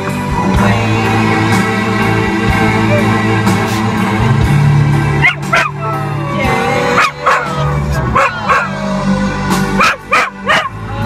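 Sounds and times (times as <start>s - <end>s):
song with low tones: 0.0s - 11.0s
dog howling: 5.2s - 9.2s, 9.8s - 10.8s.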